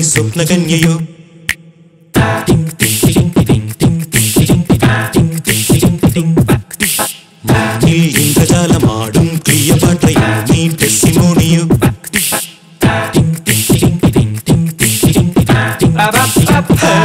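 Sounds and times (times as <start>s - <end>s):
a cappella vocal harmonies: 0.0s - 3.2s, 5.5s - 13.9s, 15.8s - 17.0s
vocal percussion beat: 0.0s - 17.0s.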